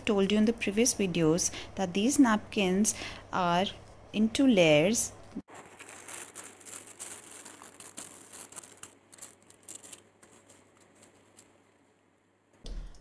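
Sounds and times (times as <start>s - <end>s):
paper napkin rustling and crinkling: 5.5s - 12.0s.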